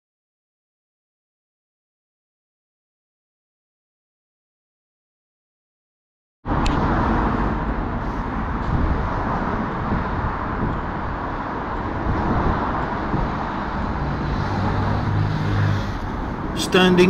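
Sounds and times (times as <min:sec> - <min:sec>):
road traffic hum: 0:06.4 - 0:17.0.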